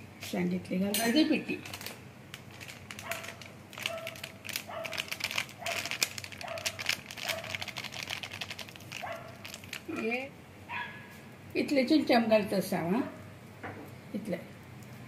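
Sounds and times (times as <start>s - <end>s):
plastic packet crinkling: 1.6s - 10.3s.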